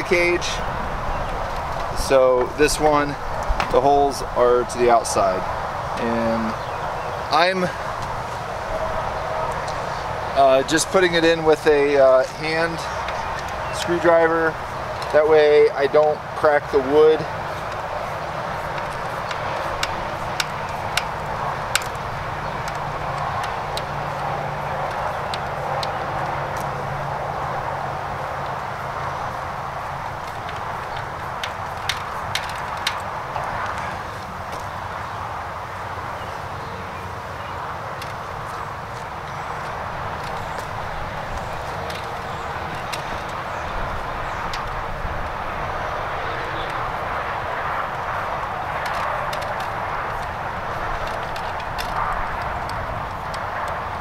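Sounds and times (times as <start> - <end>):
steady rushing noise: 0.0 - 54.0.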